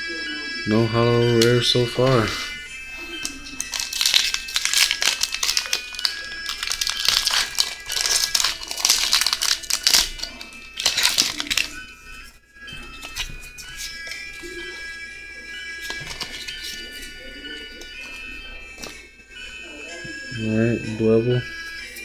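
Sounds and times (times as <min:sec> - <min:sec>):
background music: 0:00.0 - 0:22.0
foil wrapper crinkling and tearing: 0:03.2 - 0:11.8, 0:15.8 - 0:16.8.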